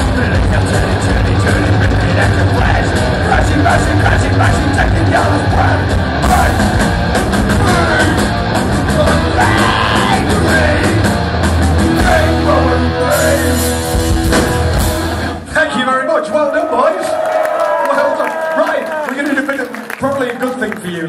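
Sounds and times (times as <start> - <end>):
man singing: 0.0 - 6.8, 7.4 - 8.3, 8.9 - 11.1, 11.8 - 13.8
distorted electric guitars: 0.0 - 15.5
bass: 0.0 - 15.7
drums: 0.0 - 15.7.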